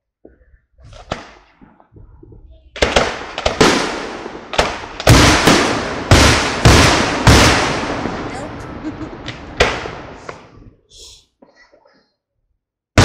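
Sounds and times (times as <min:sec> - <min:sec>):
fireworks bursting with echoing rumble: 0:00.8 - 0:10.8.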